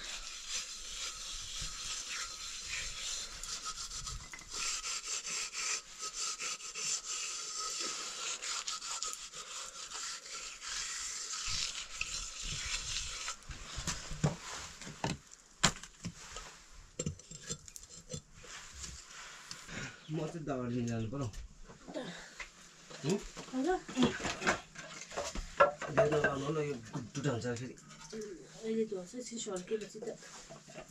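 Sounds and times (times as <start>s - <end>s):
hand scraping metal pot: 0.0s - 15.2s, 16.0s - 20.3s, 23.8s - 28.8s.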